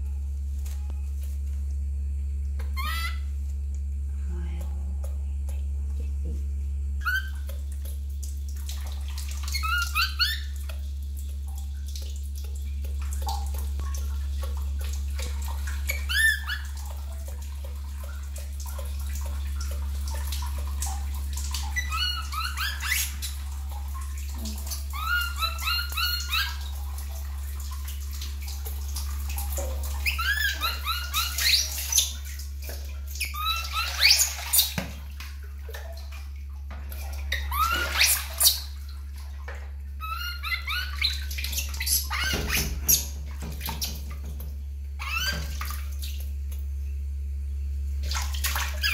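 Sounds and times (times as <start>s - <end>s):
steady low hum: 0.0s - 37.6s, 43.0s - 48.9s
baby monkey squeaking cries: 2.6s - 3.3s, 7.0s - 7.5s, 9.5s - 10.5s, 21.8s - 23.3s, 24.9s - 26.6s, 30.0s - 32.0s, 33.2s - 34.6s, 40.0s - 41.2s, 41.8s - 42.6s
water splashing and pouring: 7.1s - 46.4s, 48.0s - 48.9s.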